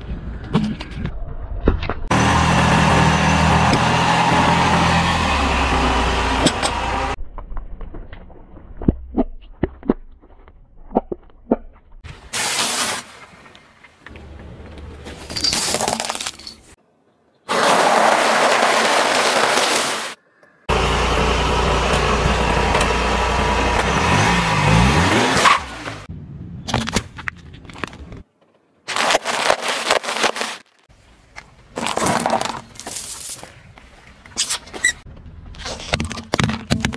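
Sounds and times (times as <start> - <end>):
crushing and rolling: 14.7 - 16.8, 17.5 - 20.2, 28.9 - 30.8, 31.4 - 33.6
car engine running: 20.7 - 26.1.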